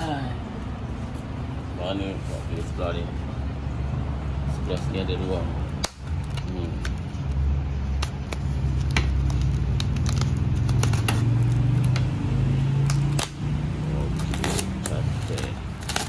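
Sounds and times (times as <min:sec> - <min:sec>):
cardboard packaging clicks and rustles: 0:05.9 - 0:12.1, 0:14.0 - 0:16.0.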